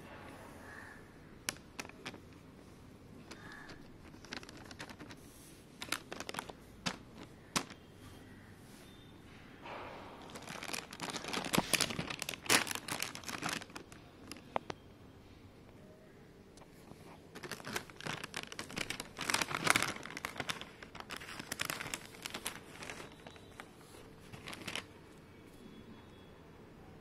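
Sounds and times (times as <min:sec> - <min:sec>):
foil packets crinkling: 0:00.7 - 0:08.4, 0:09.7 - 0:14.8, 0:16.7 - 0:25.2.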